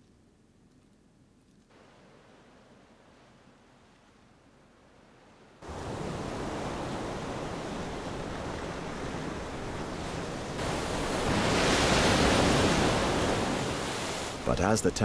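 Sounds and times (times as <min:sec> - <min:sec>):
sea surf on rocky shore: 0:01.7 - 0:15.0
waves breaking over rocks: 0:05.6 - 0:15.0.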